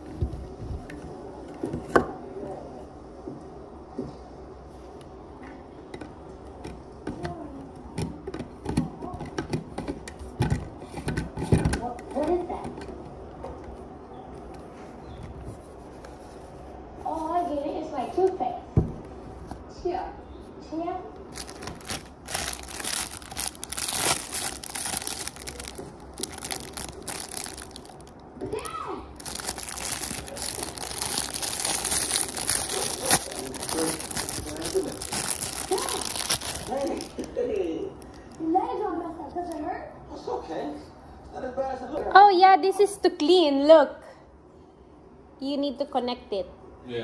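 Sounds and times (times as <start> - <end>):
plastic bag crinkling: 21.3 - 38.5.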